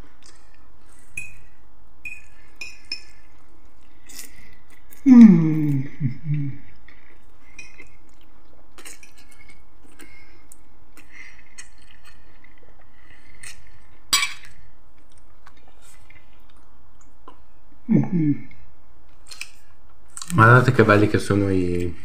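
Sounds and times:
quiet chewing: 6.4 - 17.6.

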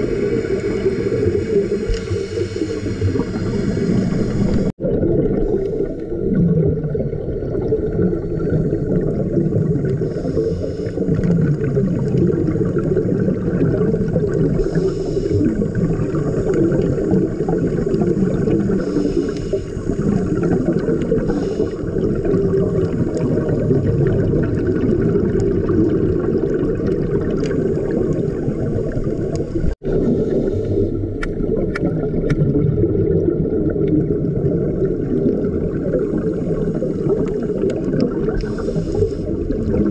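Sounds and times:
scuba exhaust bubbles: 0.0 - 39.9
underwater rumble and gurgle: 0.0 - 39.9
faint clicks: 1.8 - 4.7.

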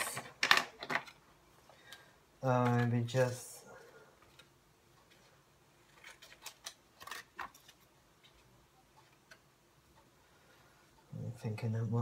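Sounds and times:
paper label rustling: 2.5 - 9.4.

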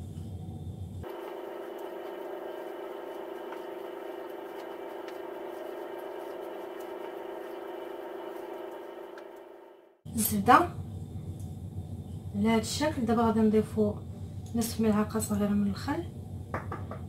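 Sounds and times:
steady hum of held tones: 0.0 - 3.6, 8.3 - 17.0.

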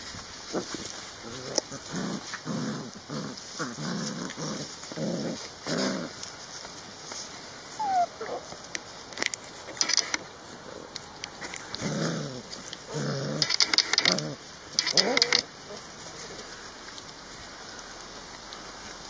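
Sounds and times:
puppies play-growling: 0.5 - 6.4, 7.7 - 8.5, 10.5 - 16.7
puppy whining: 7.8 - 8.4.

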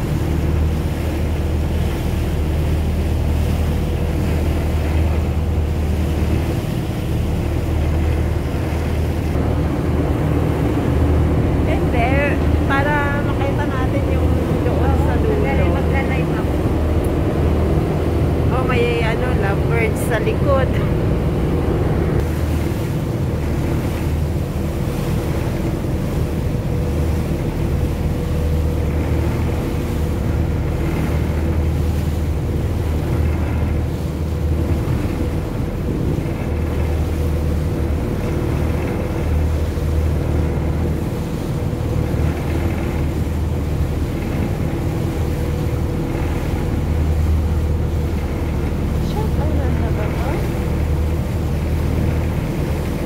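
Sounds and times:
boat engine droning: 0.0 - 53.0
water rushing past hull: 0.0 - 53.0
wind on microphone: 0.0 - 53.0.

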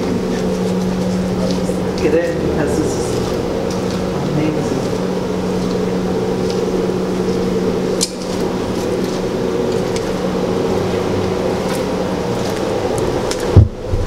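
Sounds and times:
fan machine humming: 0.0 - 14.0
footsteps on brick floor: 11.5 - 13.8.

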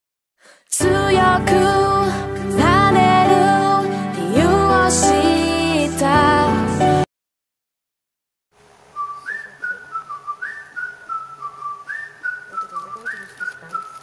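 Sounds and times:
whistled melody: 9.0 - 14.0.

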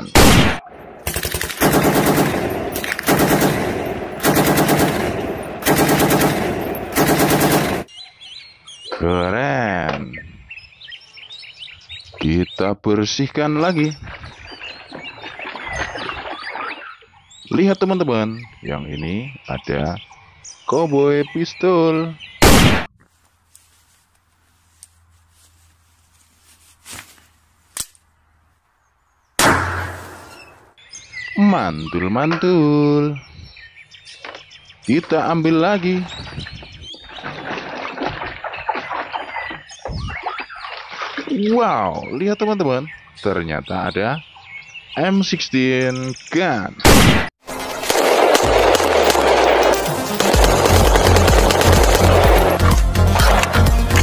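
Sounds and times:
electronic machine-gun shots: 0.2 - 7.9, 48.4 - 53.3
loud gunshot-like bang: 29.4 - 30.2.

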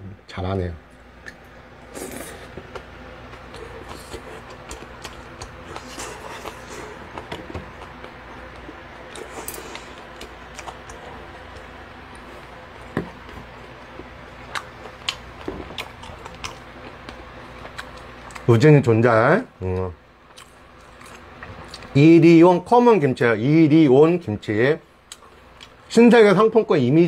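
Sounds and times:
steady low hum: 0.0 - 27.0
soft chewing: 1.2 - 18.5, 19.7 - 22.0, 25.0 - 25.9.

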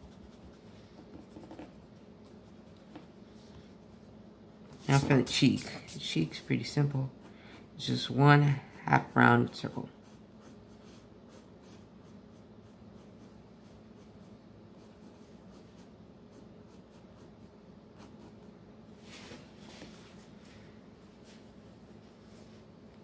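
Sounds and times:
pencil scratching on paper: 0.0 - 3.1, 4.8 - 6.2, 9.7 - 18.5
faint steady hum: 0.0 - 23.0.

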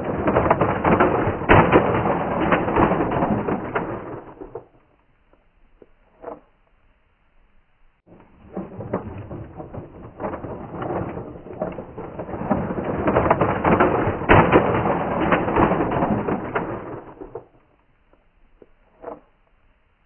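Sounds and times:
toy truck rolling over grit: 8.1 - 19.5.

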